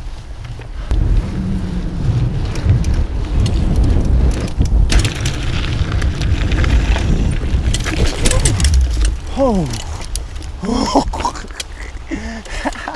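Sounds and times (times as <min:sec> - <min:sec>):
wind buffeting microphone: 0:00.0 - 0:12.9
tyres crunching over gravel: 0:02.3 - 0:12.9.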